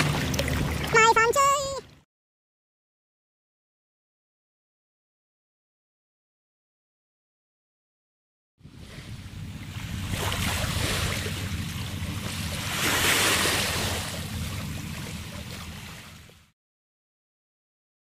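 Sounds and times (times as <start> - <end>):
small waves washing on shore: 0.0 - 1.8, 8.6 - 16.5
wind rumbling on microphone: 8.6 - 16.4.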